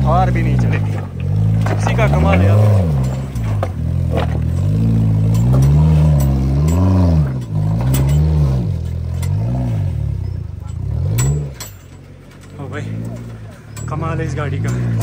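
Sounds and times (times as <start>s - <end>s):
knocks and clatter: 0.0s - 15.0s
off-road vehicle engine revving: 0.0s - 15.0s.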